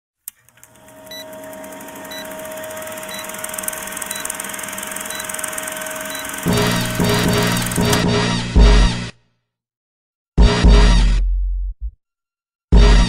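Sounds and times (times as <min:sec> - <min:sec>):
film projector whirring: 0:00.3 - 0:08.1
short high beeps: 0:01.1 - 0:01.4, 0:02.1 - 0:07.9.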